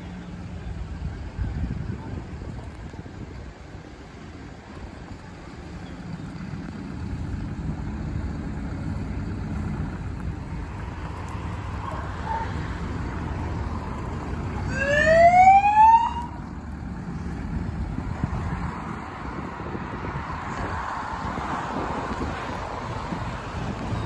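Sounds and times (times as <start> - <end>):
truck driving past rumbling: 0.0 - 24.0
siren rising sweep: 14.7 - 16.4.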